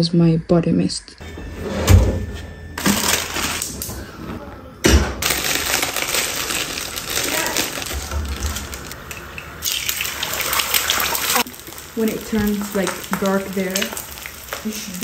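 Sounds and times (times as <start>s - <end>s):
plastic packet crinkling: 2.8s - 3.9s, 5.2s - 9.0s.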